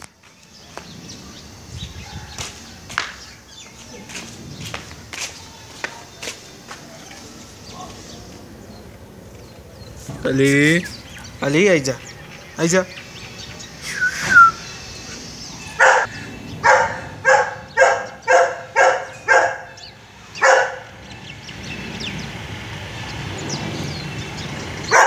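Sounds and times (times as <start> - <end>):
dog barking: 2.0 - 2.8, 15.8 - 19.8, 20.4 - 21.0.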